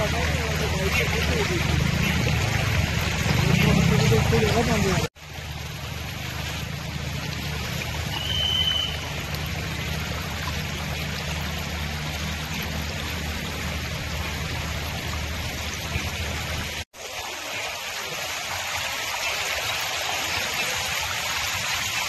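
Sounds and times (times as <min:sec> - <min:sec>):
floodwater rushing across road: 0:00.0 - 0:22.0
short high whistle tone: 0:08.1 - 0:09.2.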